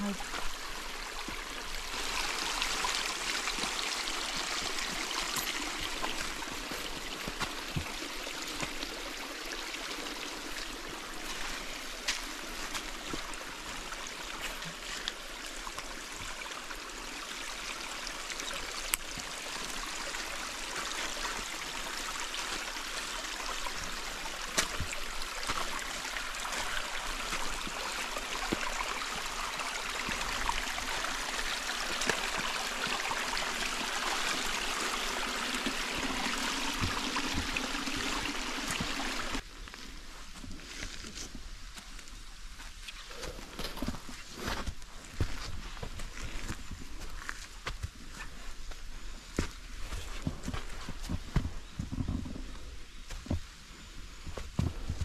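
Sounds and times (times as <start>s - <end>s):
stream rushing over rocks: 0.0s - 39.5s.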